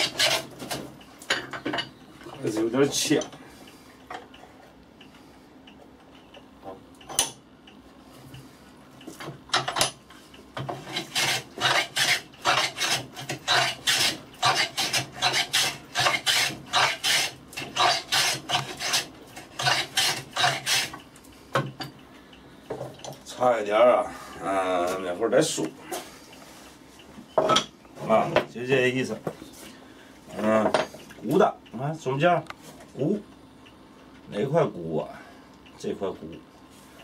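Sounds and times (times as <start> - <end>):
hand plane shaving wood: 0.0 - 0.6, 10.8 - 21.0.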